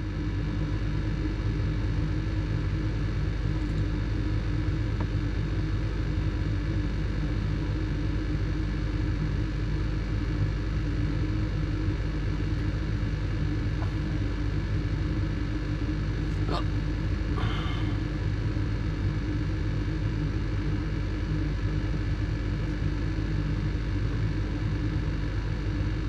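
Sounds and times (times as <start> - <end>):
furnace inducer motor humming: 10.1 - 26.0.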